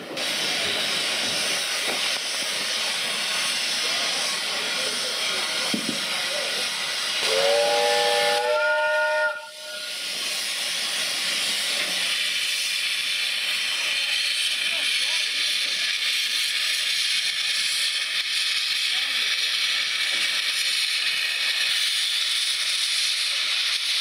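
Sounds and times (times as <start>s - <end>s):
steam hissing: 0.0s - 24.0s
steam whistle blast: 7.2s - 10.3s.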